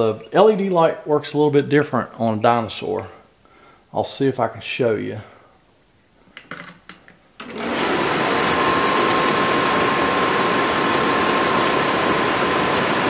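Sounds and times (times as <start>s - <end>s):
faint motor whine: 7.4s - 13.0s
furnace blower air rush: 7.4s - 13.0s.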